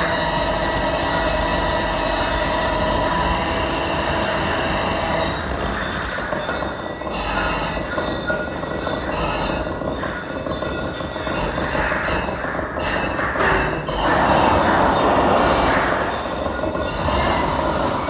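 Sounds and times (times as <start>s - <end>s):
harsh noise music: 9.3s - 18.0s
sustained screeching tones: 13.9s - 18.0s.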